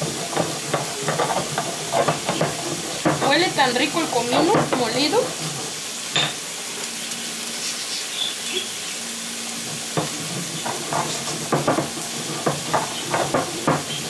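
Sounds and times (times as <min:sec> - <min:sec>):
stone pestle grinding spices: 0:00.0 - 0:05.7, 0:09.6 - 0:14.0
food sizzling on stove: 0:00.0 - 0:14.0.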